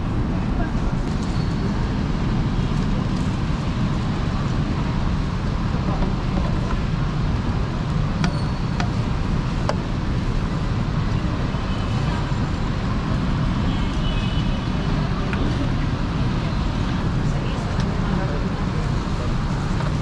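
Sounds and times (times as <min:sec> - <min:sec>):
busy market din: 0:00.0 - 0:10.2.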